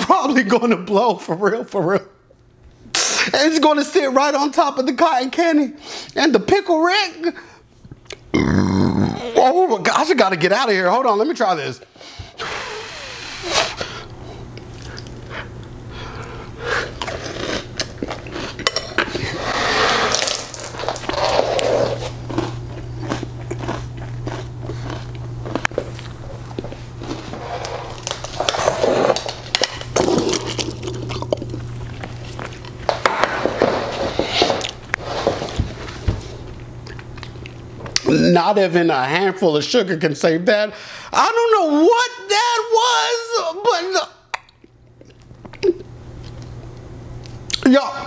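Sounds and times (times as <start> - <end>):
steady low hum: 5.6 - 41.2
person chewing crunchy cereal: 14.6 - 32.9.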